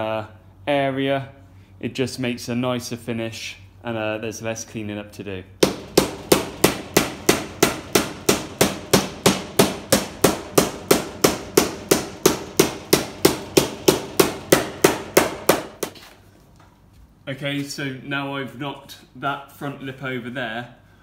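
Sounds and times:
hammer striking sheet metal: 0:05.6 - 0:16.0.

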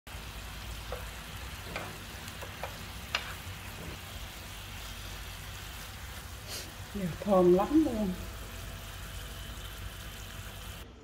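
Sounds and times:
meat sizzling in a frying pan: 0:00.1 - 0:10.8
chopsticks clicking against pan: 0:00.9 - 0:03.4.

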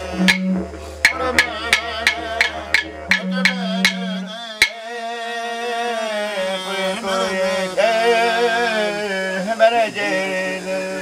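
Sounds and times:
didgeridoo drone: 0:00.0 - 0:11.0
clapsticks striking: 0:00.3 - 0:04.8
man singing: 0:01.1 - 0:11.0.

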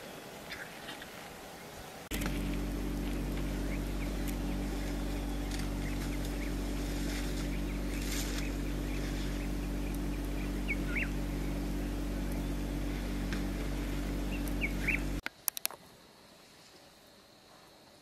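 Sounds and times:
low droning hum: 0:02.0 - 0:15.2.

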